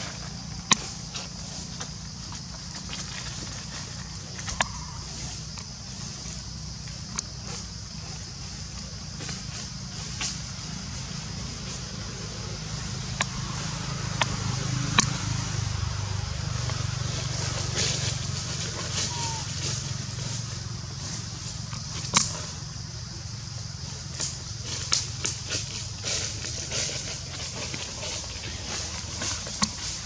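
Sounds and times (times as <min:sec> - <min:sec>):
dry leaves crackling: 0:00.0 - 0:22.4, 0:23.3 - 0:30.0.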